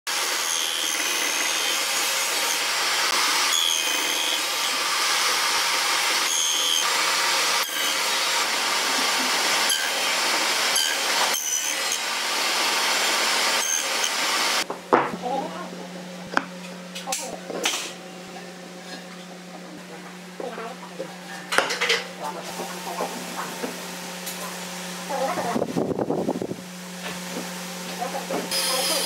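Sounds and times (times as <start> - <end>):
table saw cutting wood: 0.1 - 14.7, 27.0 - 29.0.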